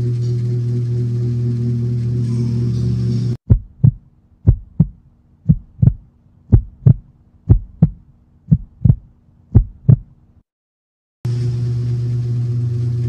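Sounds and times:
heartbeat thumps: 3.4 - 10.2.

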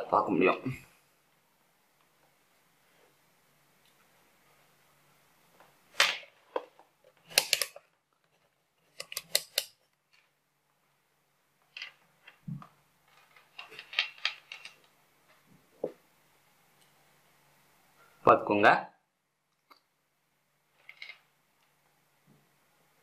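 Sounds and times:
clicks and taps handling multimeter: 9.0 - 9.8.

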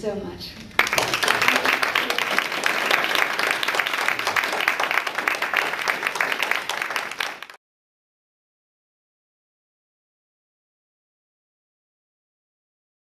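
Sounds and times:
audience applauding: 0.7 - 7.6.

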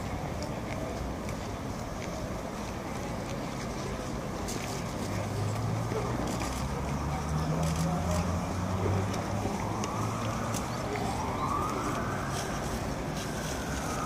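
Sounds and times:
city traffic rumble: 0.0 - 14.0
siren wailing: 9.3 - 14.0.

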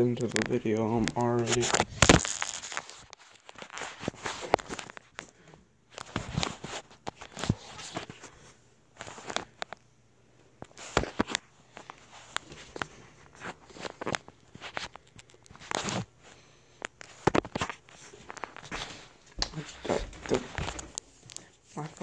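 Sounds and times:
footsteps walking indoors: 16.9 - 22.0.

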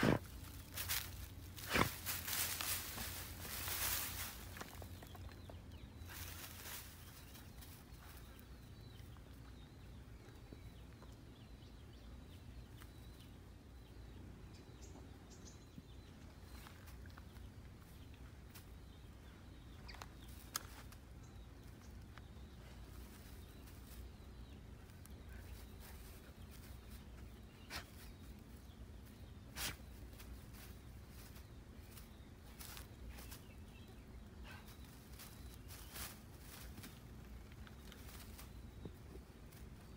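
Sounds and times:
dog rustling through straw: 0.0 - 4.8, 6.0 - 7.8
steady low rumble: 0.0 - 20.2
faint high bird chirps: 0.7 - 37.0.

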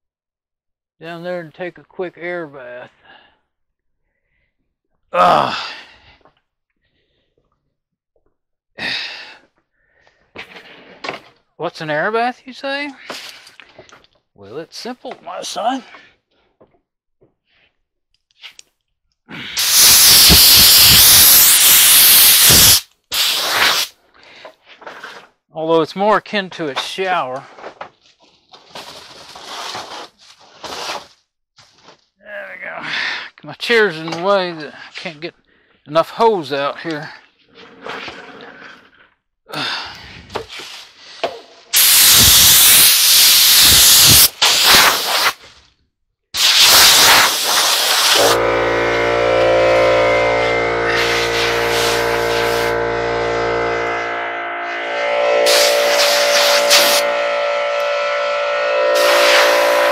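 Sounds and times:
compressed air blasts: 19.6 - 23.9, 41.7 - 45.4, 46.4 - 48.5, 50.9 - 52.8, 55.4 - 58.0.

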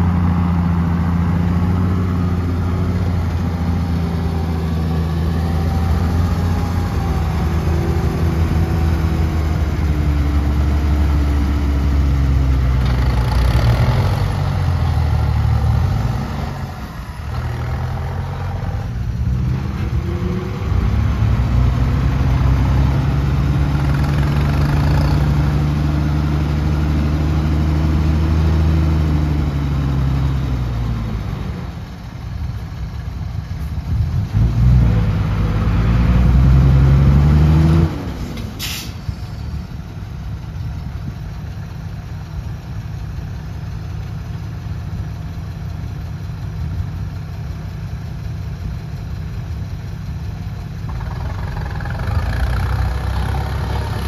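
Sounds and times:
heavy diesel engine revving: 0.0 - 31.9, 33.8 - 39.7, 50.1 - 54.0.

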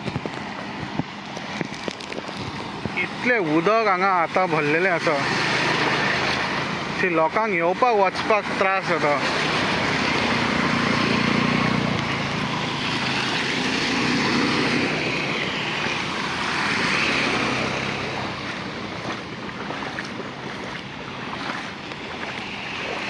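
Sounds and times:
floodwater rushing: 0.0 - 23.0
motorbike moving off: 9.0 - 23.0.

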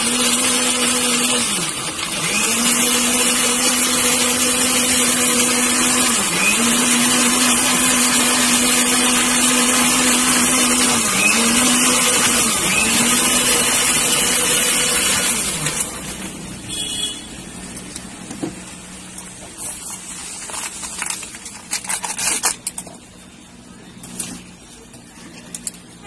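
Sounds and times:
blender motor running: 0.0 - 17.3
plastic cups crinkling: 19.2 - 23.2.

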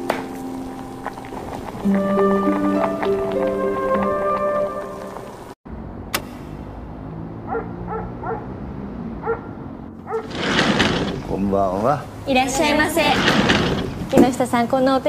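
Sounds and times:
background music: 0.0 - 5.6
wooden sliding door rattling: 10.2 - 11.8, 12.4 - 14.5.

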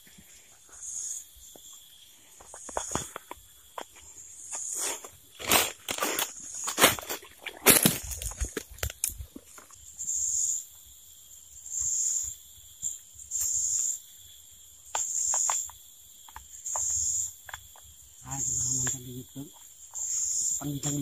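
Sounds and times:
insect calling in high pulses: 0.3 - 21.0
man's voice: 20.6 - 21.0.

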